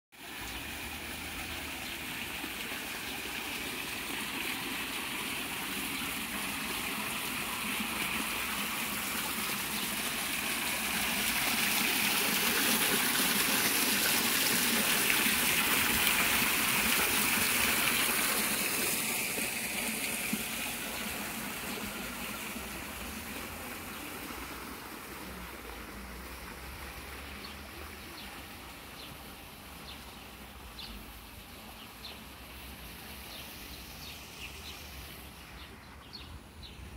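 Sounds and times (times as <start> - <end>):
water splashing down rocks: 0.2 - 35.6.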